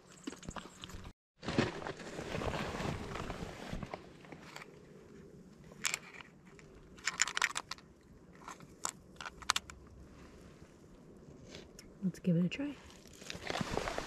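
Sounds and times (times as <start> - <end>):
small objects clicking: 6.9 - 7.8, 8.4 - 9.8.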